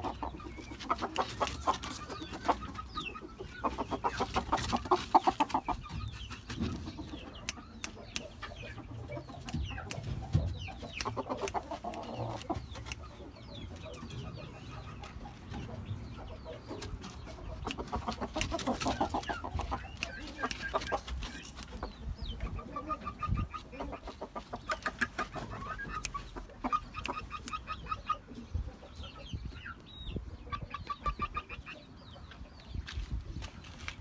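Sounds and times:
rooster clucking: 0.0 - 29.1, 30.5 - 32.0
sharp clicks: 10.9 - 13.1, 17.6 - 21.7.

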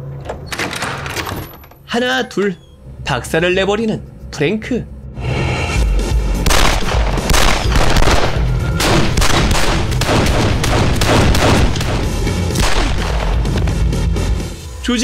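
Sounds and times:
background music: 0.0 - 15.0
rapid gunfire: 6.4 - 13.5.

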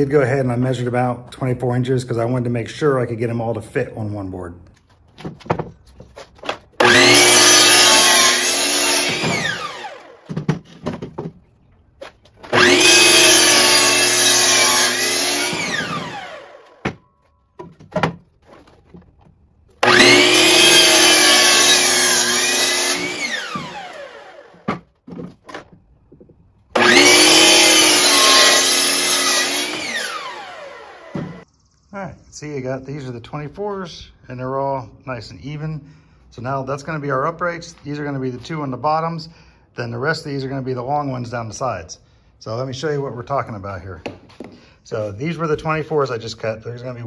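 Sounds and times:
knocks of board being handled: 4.8 - 6.8, 10.2 - 12.5, 16.8 - 19.4, 24.6 - 26.5
miter saw cutting wood: 6.8 - 10.6, 12.4 - 17.0, 19.8 - 24.9, 26.7 - 31.4.

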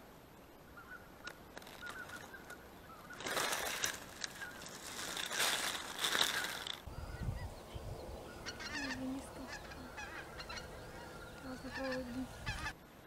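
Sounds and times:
geese honking: 8.2 - 12.8.

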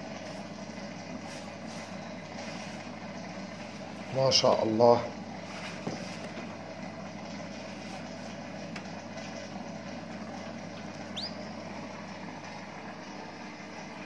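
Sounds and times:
steady low hum: 0.0 - 14.0
canary chirp: 11.0 - 11.6.

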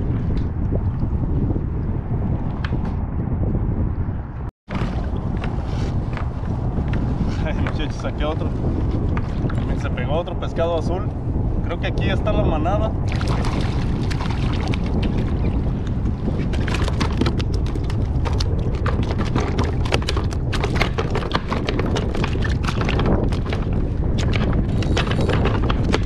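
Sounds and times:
wind buffeting microphone: 0.0 - 26.0
water splashing and slapping: 4.7 - 10.2, 13.0 - 26.0.

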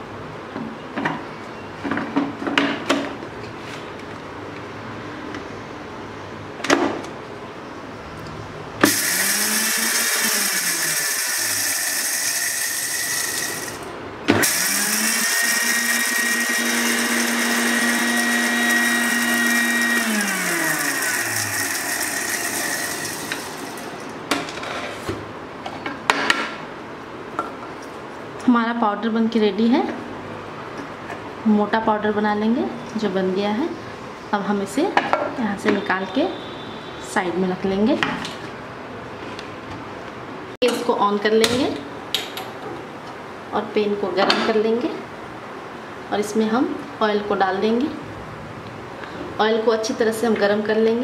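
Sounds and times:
mixer grinder motor whining: 8.8 - 24.1.

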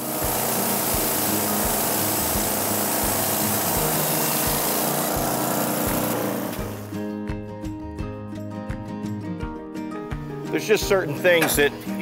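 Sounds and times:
band sawmill cutting log: 0.0 - 7.0
background music with beat: 0.0 - 12.0.

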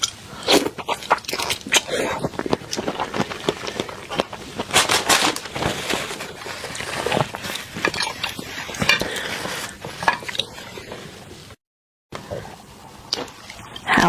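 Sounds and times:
food crackling on ceramic plate: 0.0 - 10.8.

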